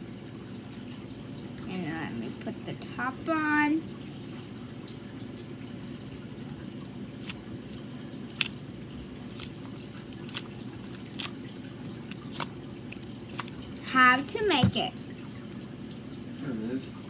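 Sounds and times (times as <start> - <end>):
squish ball squelching clicks: 10.2 - 13.6.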